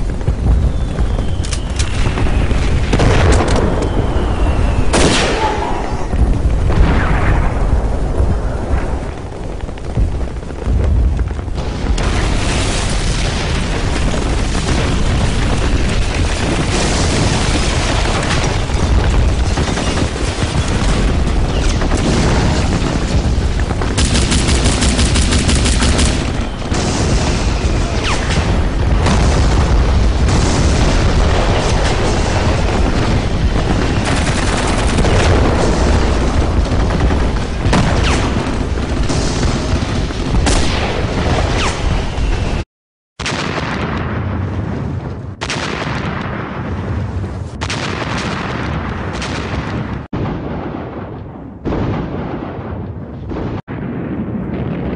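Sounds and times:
deep rumble: 0.0 - 41.5
booming explosions: 0.0 - 42.6, 43.2 - 54.9
gunfire volleys: 0.7 - 10.3, 11.9 - 42.6, 45.3 - 54.0
rapid machine-gun burst: 9.0 - 42.6.

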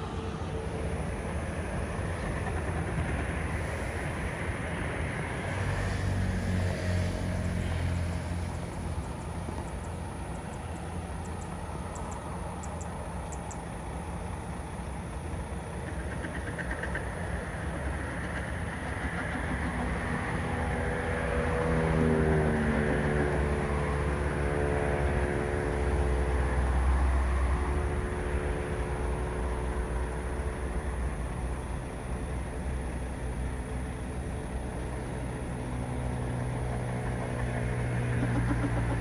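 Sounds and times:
distant jet engines rumbling: 0.0 - 39.0.

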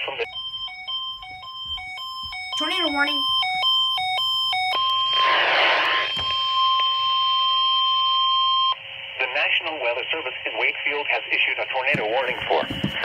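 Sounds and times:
steady warning tone: 0.0 - 10.3.

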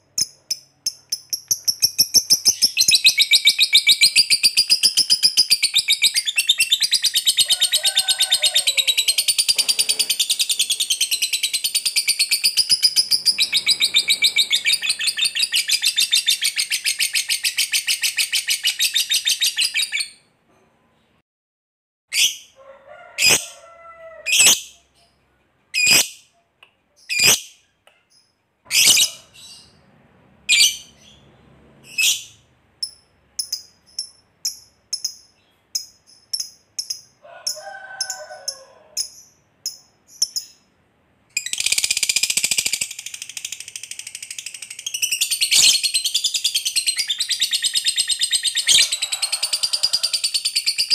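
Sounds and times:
bird chirps: 0.0 - 7.6, 9.1 - 20.3, 31.9 - 37.2, 39.0 - 40.7, 41.4 - 50.9
lovebird chattering trill: 0.2 - 7.6, 8.8 - 20.0.

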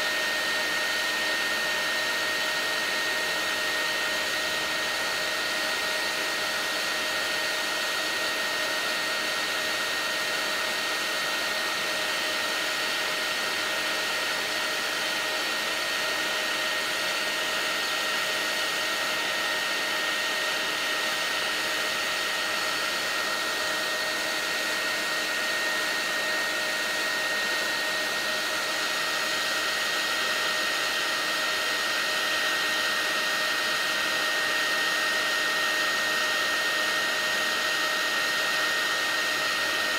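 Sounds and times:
heat gun blowing with whine: 0.0 - 39.9.

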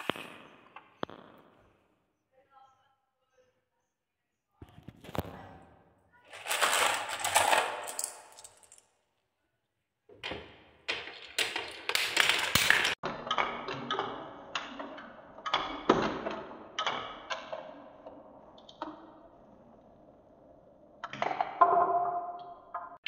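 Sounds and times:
balls clacking on wooden track: 6.3 - 8.8, 10.1 - 19.2, 21.0 - 23.0.

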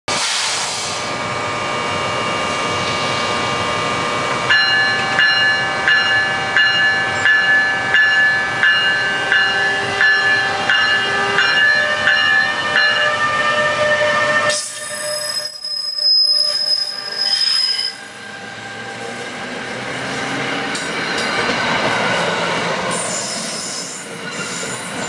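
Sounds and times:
electric locomotive hiss and whine: 0.1 - 25.0
locomotive bell ringing: 4.4 - 15.7.

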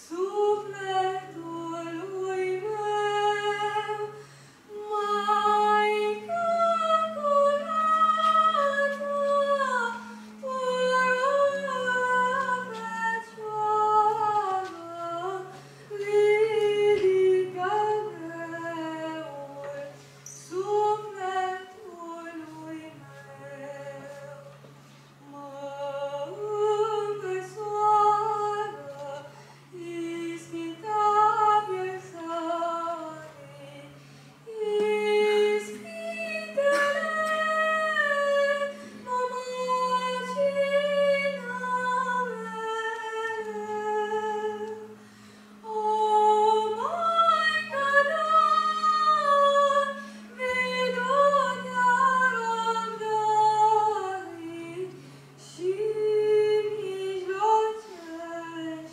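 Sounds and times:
low held accompaniment notes: 0.0 - 58.9
boy singing into microphone: 4.7 - 24.7, 34.5 - 45.0, 45.6 - 58.9.

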